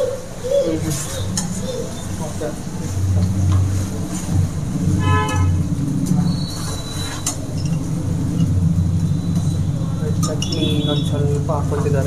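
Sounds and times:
steady low hum: 0.0 - 12.0
vehicle horn toot: 5.0 - 5.7, 9.7 - 11.4.

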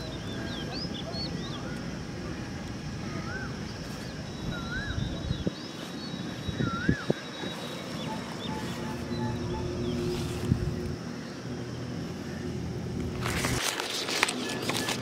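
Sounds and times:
low engine-like hum: 0.0 - 15.0
bird chirps: 3.1 - 11.4.

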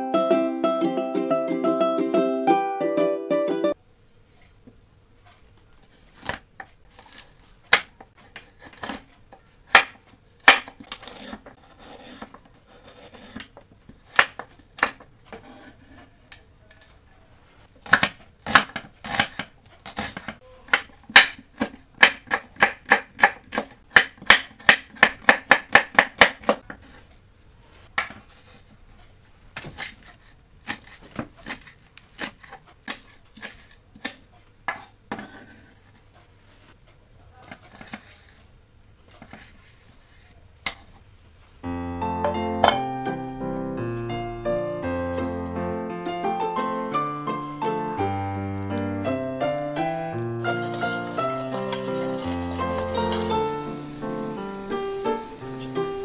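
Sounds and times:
knife chopping on wooden board: 9.7 - 15.9, 17.8 - 26.8.

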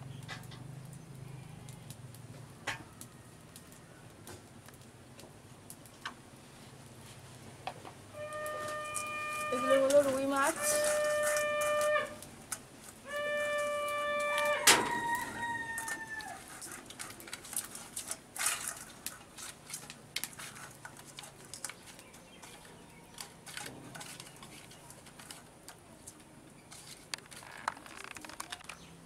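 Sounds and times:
hands handling fish in colander: 8.2 - 28.7
rooster crowing: 13.1 - 16.5.

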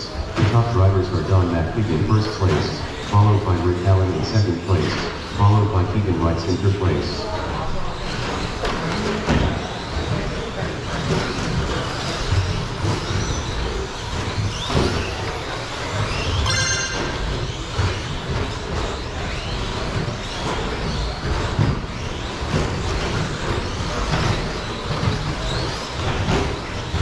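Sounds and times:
electric motors whining: 0.0 - 27.0
short beep: 16.4 - 17.2.

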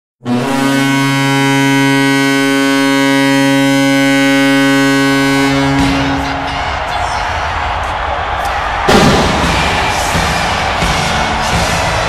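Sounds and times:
goal horn low blast: 0.2 - 12.0
burst of noise: 7.6 - 11.5.

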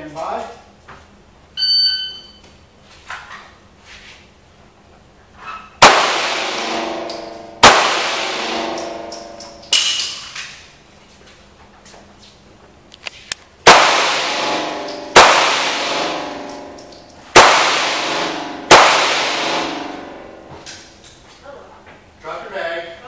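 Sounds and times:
shot timer beep: 1.6 - 2.4
echoing handgun shots: 5.8 - 10.2, 13.6 - 20.5.

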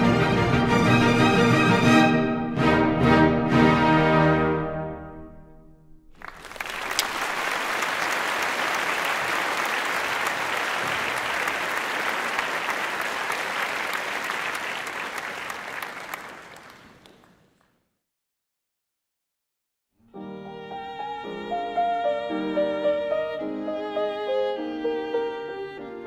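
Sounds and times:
audience applause: 6.2 - 17.7.

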